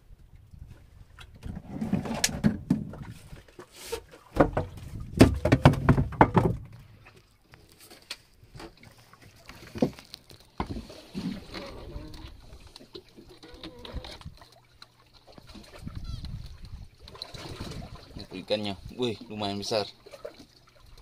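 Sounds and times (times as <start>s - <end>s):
water along boat hull: 0.0s - 21.0s
knocks and thumps on wooden boat: 1.4s - 3.5s, 4.2s - 6.9s.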